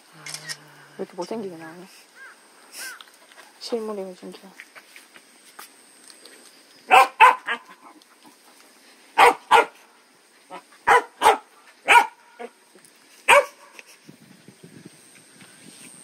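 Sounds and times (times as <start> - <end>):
dog barking: 6.9 - 7.8, 9.2 - 9.8, 10.8 - 12.6, 13.3 - 13.7.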